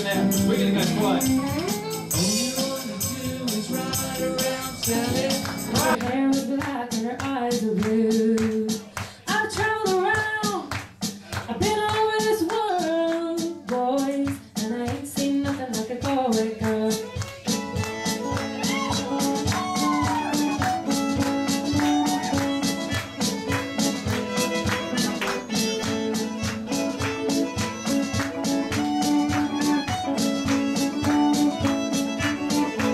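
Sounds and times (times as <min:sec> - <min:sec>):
violin melody: 0:00.0 - 0:02.4, 0:16.9 - 0:32.9
live band with drums: 0:00.0 - 0:32.9
woman singing: 0:03.3 - 0:10.8, 0:11.4 - 0:17.3.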